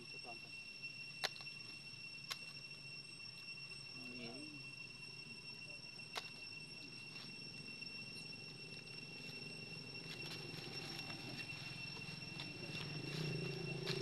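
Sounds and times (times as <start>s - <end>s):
night insects droning: 0.0s - 14.0s
monkeys rustling on stone: 9.2s - 14.0s.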